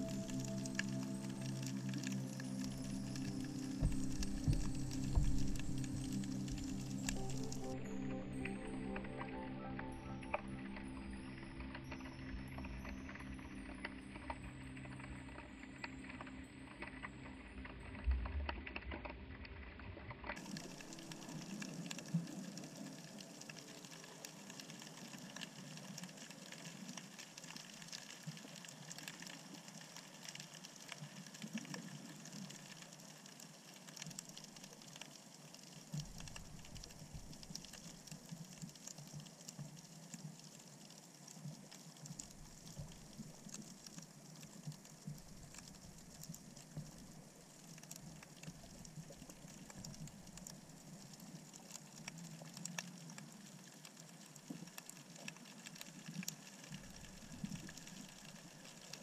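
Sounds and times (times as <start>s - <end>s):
underwater hiss with crackling clicks: 0.0s - 9.4s, 20.3s - 59.0s
low rumble: 2.6s - 8.5s.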